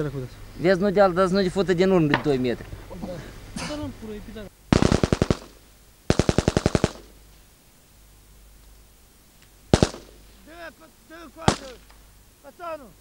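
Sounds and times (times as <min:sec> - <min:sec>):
person speaking: 0:00.0 - 0:04.6, 0:10.3 - 0:13.0
rifle shots: 0:04.7 - 0:07.2, 0:09.7 - 0:10.3, 0:11.4 - 0:12.0.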